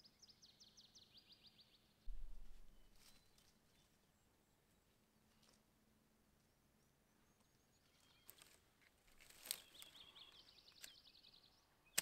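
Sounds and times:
faint birdsong: 0.0 - 12.0
twigs snapping: 9.1 - 9.8.

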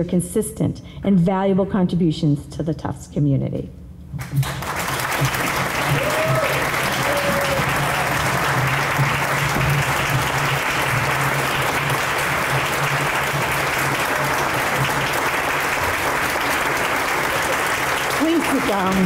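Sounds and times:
audience applauding: 4.2 - 19.0.

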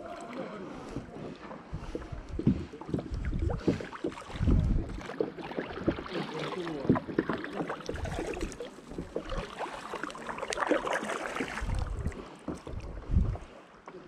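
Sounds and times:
paddle water splashing and dripping: 0.0 - 14.0
low rumbling thumps: 0.9 - 5.1, 11.6 - 13.5.

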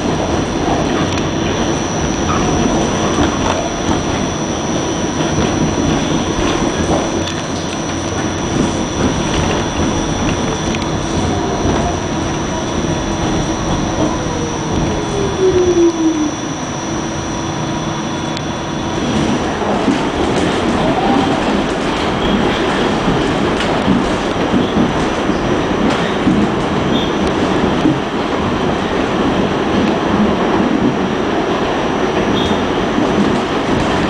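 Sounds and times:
train wheels rumbling on rail: 0.0 - 34.0
tone sliding down in pitch: 10.7 - 19.4.

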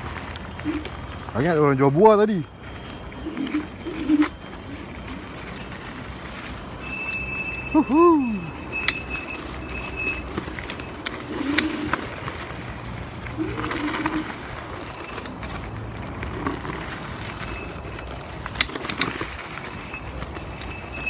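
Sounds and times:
electric scooter rolling on dirt: 0.0 - 21.0
scooter knocking and rattling: 8.6 - 21.0.

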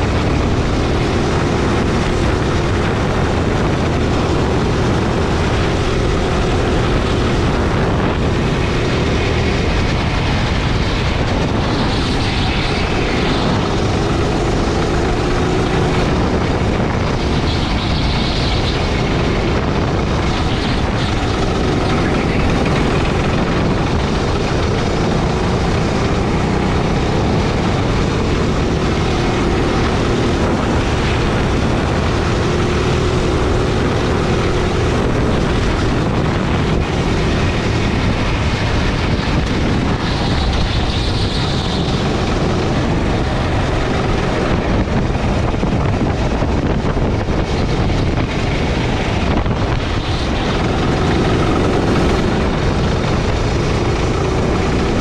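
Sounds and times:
go-kart engine running: 0.0 - 55.0
wind noise on microphone: 0.0 - 55.0.

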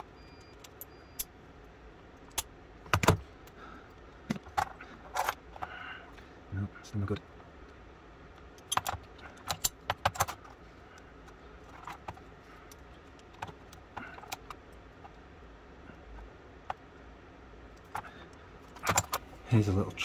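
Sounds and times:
small metal parts clicking: 8.4 - 10.6.

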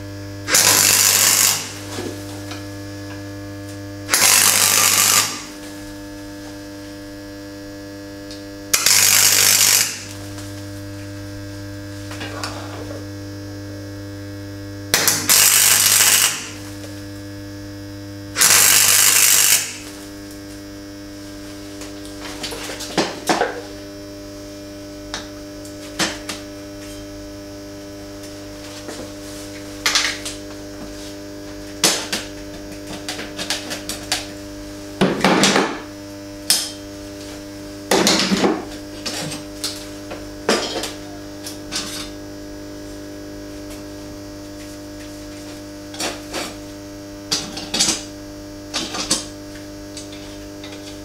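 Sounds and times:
steady electrical hum: 0.0 - 51.0
welder crackling hiss: 0.5 - 2.7, 4.1 - 6.7, 8.7 - 12.8, 15.0 - 17.2, 18.4 - 20.5.

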